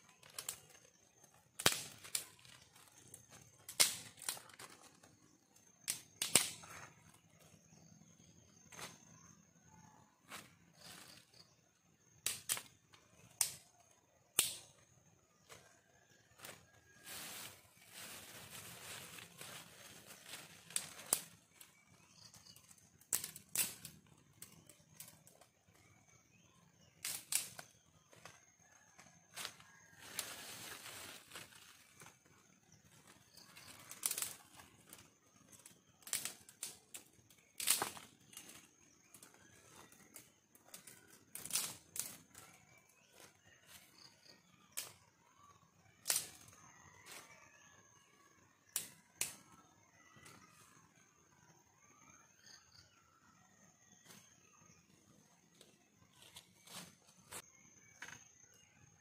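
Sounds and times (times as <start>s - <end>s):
dry sticks snapping: 1.6s - 2.3s, 3.7s - 4.7s, 5.9s - 6.6s, 13.4s - 13.6s, 14.4s - 14.6s, 23.1s - 24.6s, 27.0s - 27.7s, 36.0s - 37.0s, 37.6s - 38.5s
rustling and scraping: 16.4s - 21.2s.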